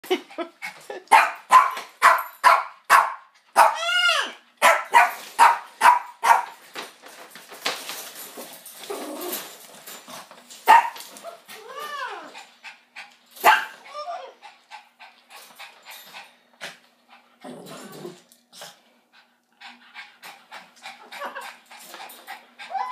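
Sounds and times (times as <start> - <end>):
small dog barking: 1.1 - 3.9, 4.6 - 6.5, 10.7 - 11.0, 13.4 - 13.8
dog crying: 3.6 - 4.5, 10.8 - 12.4, 13.5 - 14.4, 22.6 - 22.9.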